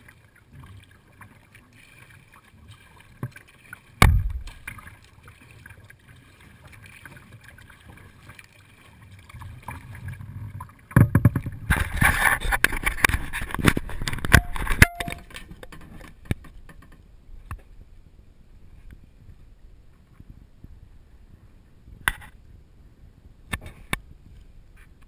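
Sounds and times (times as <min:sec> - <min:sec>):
water lapping: 0:00.0 - 0:14.8
paddle water splashing on deck: 0:00.0 - 0:16.8.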